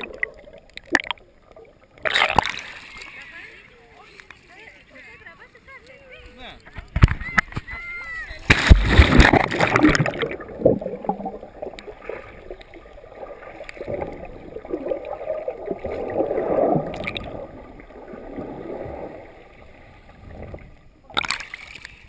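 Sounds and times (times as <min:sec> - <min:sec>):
underwater bubbling and gurgling: 0:00.0 - 0:03.4, 0:08.5 - 0:22.0
splash: 0:02.0 - 0:03.3, 0:08.4 - 0:22.0.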